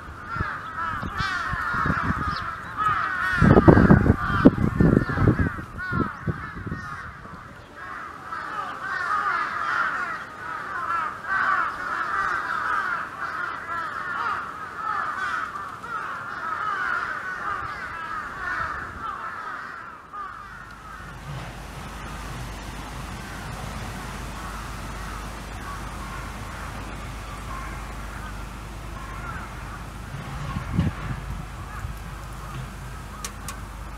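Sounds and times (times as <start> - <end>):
flock of birds calling: 0.0 - 33.9.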